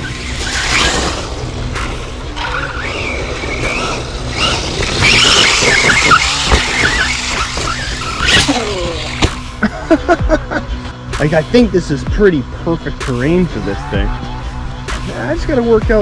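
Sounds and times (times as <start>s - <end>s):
tyres scrabbling on rough ground: 0.0s - 9.4s
electric motor whining: 0.0s - 9.6s.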